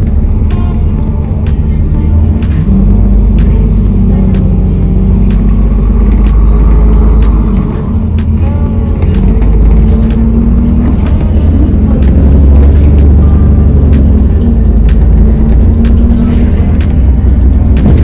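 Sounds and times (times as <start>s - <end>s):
bus engine and road rumble: 0.0s - 18.0s
sharp clicks and rattles: 5.2s - 8.4s, 9.0s - 18.0s.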